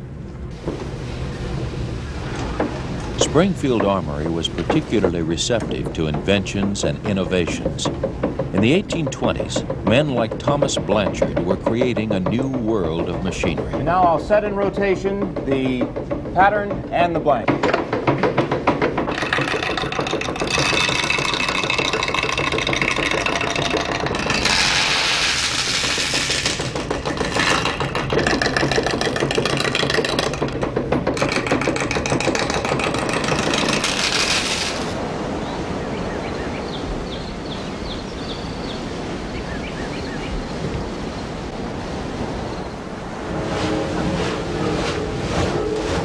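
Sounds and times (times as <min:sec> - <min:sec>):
machine rumble: 0:00.0 - 0:35.4, 0:41.6 - 0:46.0
rushing water: 0:31.3 - 0:46.0.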